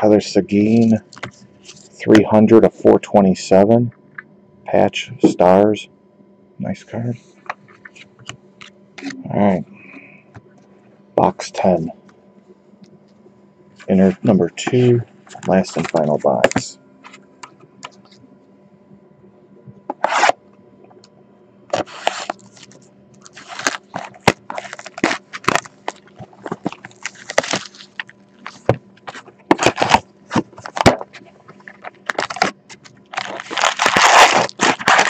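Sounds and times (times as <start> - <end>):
card packs tearing and crackling: 21.8 - 31.0, 31.6 - 35.0.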